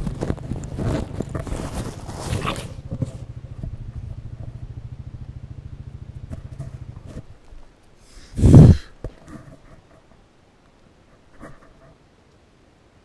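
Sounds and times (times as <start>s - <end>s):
small engine idling: 0.0s - 8.4s.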